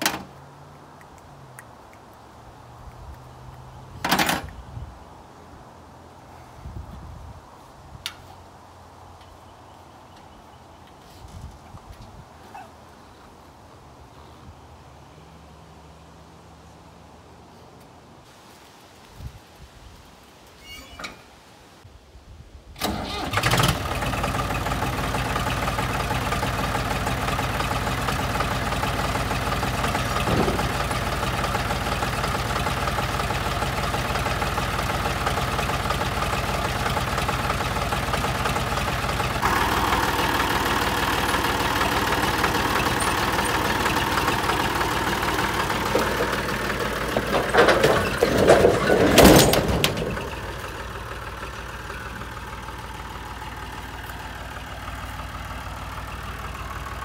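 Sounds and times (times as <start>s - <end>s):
loud clunks off trailer: 4.0s - 4.5s, 27.7s - 34.7s, 41.3s - 51.4s
tractor engine running: 22.8s - 57.0s.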